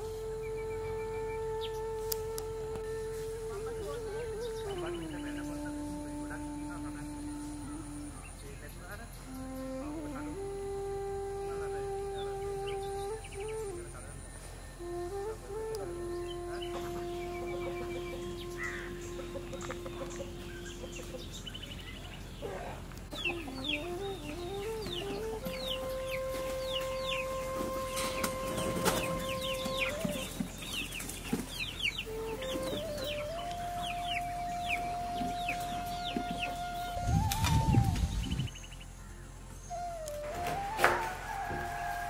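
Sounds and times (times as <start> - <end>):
soft background music: 0.0 - 42.0
chickens clucking: 19.1 - 24.1, 24.9 - 36.6.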